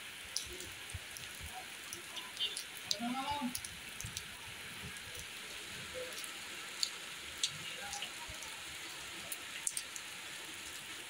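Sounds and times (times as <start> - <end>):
heavy rain falling: 0.0 - 11.0
sharp drip ticks: 0.3 - 5.4, 6.1 - 8.1, 9.3 - 10.0.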